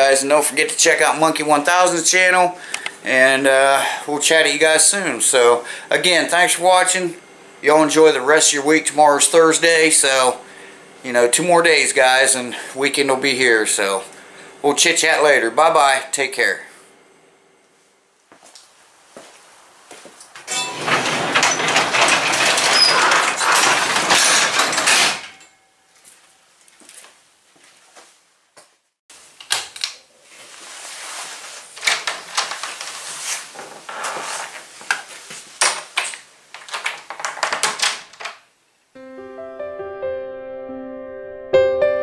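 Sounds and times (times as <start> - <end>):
roll-up garage door rattling: 20.5 - 25.6.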